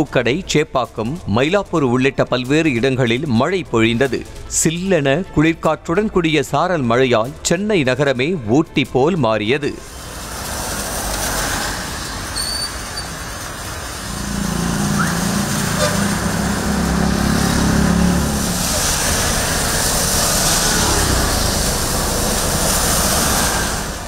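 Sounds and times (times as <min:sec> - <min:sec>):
traffic hiss on wet road: 0:09.7 - 0:24.0
vehicle engine humming past: 0:09.8 - 0:24.0.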